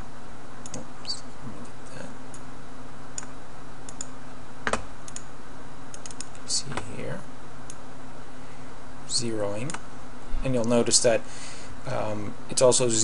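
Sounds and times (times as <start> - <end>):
steady low hum: 0.0 - 13.0
computer mouse and keyboard clicks: 0.6 - 0.8, 5.9 - 6.9.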